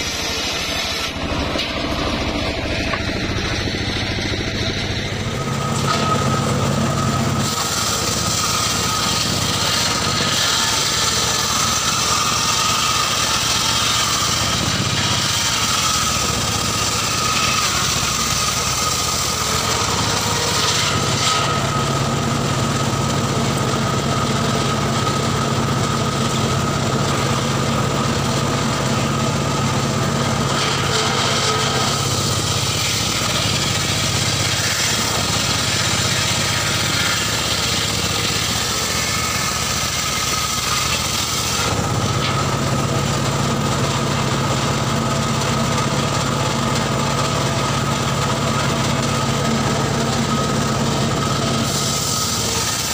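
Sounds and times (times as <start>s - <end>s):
circular saw cutting a log: 0.0s - 52.9s
motor hum: 0.0s - 52.9s.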